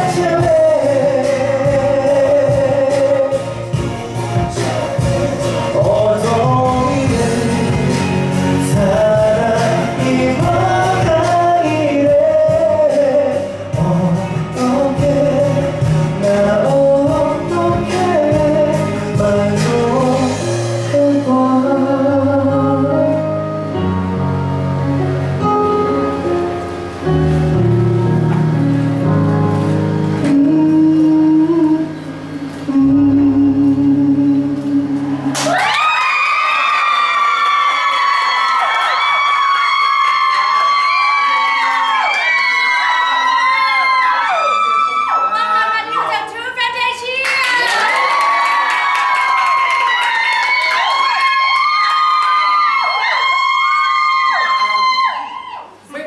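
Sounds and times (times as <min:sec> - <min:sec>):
man singing a slow ballad: 0:00.0 - 0:23.9, 0:29.2 - 0:35.4
backing accompaniment: 0:00.0 - 0:35.6.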